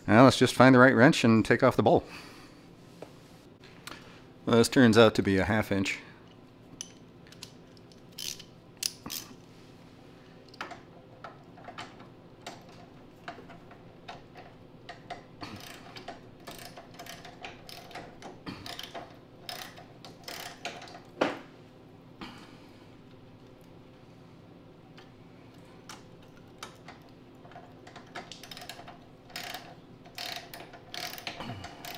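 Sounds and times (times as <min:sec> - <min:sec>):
wrench metallic clicks: 0:06.8 - 0:09.3, 0:10.5 - 0:21.1, 0:25.9 - 0:31.9.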